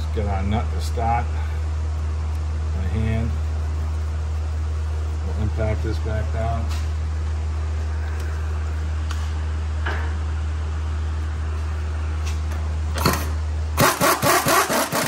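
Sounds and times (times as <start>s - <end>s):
steady low hum: 0.0s - 15.0s
impact wrench hammering: 13.0s - 15.0s.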